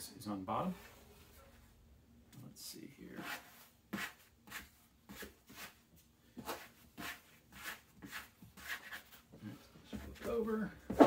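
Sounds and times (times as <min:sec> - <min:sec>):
bench scraper scraping wooden counter: 0:03.2 - 0:05.8, 0:06.4 - 0:09.2.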